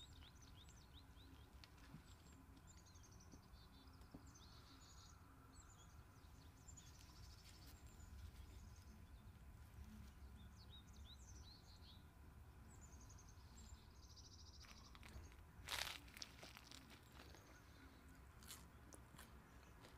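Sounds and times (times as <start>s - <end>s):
birds chirping and trilling: 0.0s - 19.9s
low outdoor rumble: 0.0s - 19.9s
bread crust crunching: 14.6s - 17.4s.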